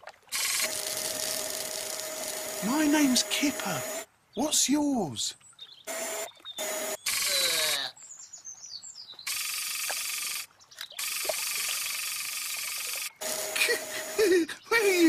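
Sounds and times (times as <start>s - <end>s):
buzzing electronic whirs: 0.3s - 4.1s, 5.9s - 7.8s, 9.3s - 14.5s
sliding warbling tones: 9.3s - 14.4s
falling electronic chirps: 9.3s - 14.6s.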